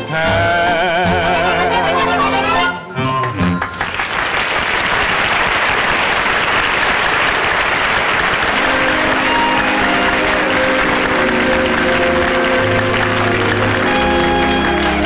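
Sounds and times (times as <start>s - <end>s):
orchestra bridge music: 0.0s - 4.0s, 8.4s - 15.0s
audience applauding: 3.2s - 15.0s.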